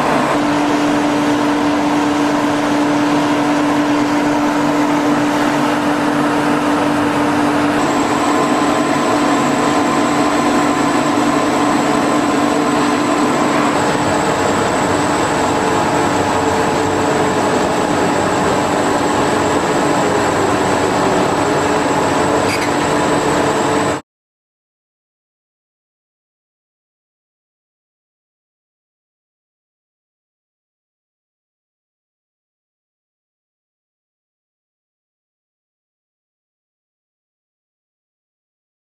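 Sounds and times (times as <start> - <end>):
industrial machinery drone: 0.0 - 24.0
thin high whine: 0.0 - 24.0.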